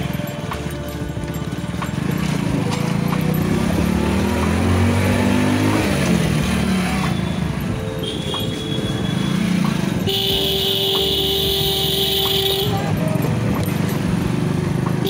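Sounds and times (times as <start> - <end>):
motorcycles and cars revving: 0.0 - 15.0
long loud horn blast: 6.6 - 13.0
vehicle horn: 6.6 - 13.2.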